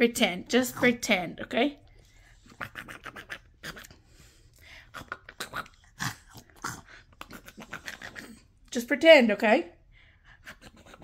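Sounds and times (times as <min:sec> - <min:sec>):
mouth smacking and chewing clicks: 0:02.5 - 0:04.0, 0:04.9 - 0:08.4.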